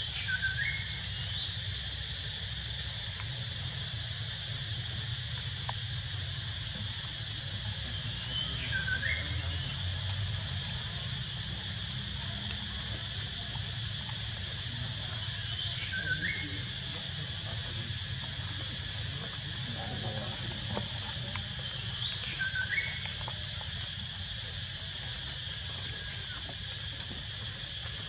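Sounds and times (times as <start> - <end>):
high hiss: 0.0 - 28.0
whistled calls: 0.1 - 1.6, 7.4 - 10.4, 14.6 - 24.0.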